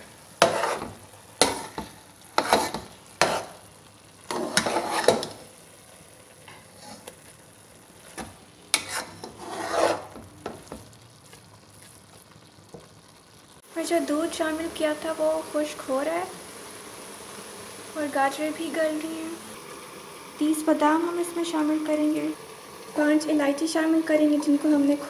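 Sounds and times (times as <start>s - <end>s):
metal spoon scraping pot: 0.4s - 1.8s, 2.4s - 3.5s, 4.3s - 5.4s, 8.7s - 10.2s.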